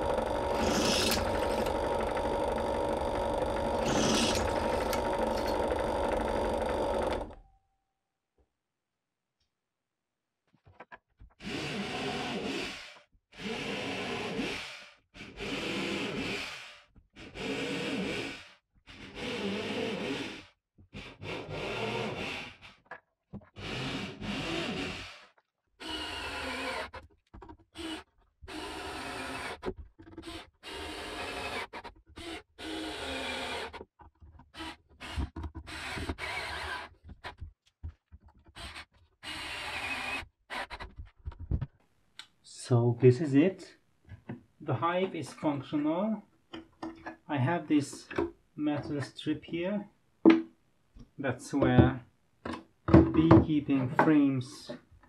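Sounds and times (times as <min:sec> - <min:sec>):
cordless drill driving screws: 0:00.0 - 0:07.4, 0:23.6 - 0:25.2, 0:25.8 - 0:27.0, 0:27.8 - 0:33.8, 0:34.5 - 0:36.9, 0:38.6 - 0:40.8
electric drill boring into wood: 0:00.0 - 0:07.4, 0:11.4 - 0:20.4, 0:21.1 - 0:22.6, 0:23.6 - 0:27.0, 0:27.8 - 0:33.8, 0:34.5 - 0:36.9, 0:38.6 - 0:40.8.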